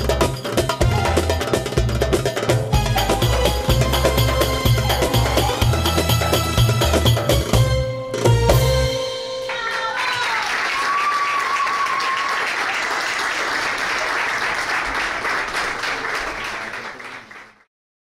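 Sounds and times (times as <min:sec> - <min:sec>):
belly-dance music: 0:00.0 - 0:11.0
high cheer: 0:09.4 - 0:17.2
audience applauding: 0:09.5 - 0:17.7.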